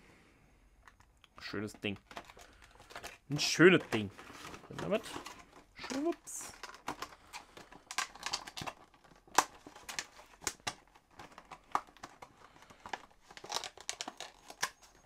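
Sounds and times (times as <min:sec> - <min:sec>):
packaging crinkling: 0:01.6 - 0:15.0.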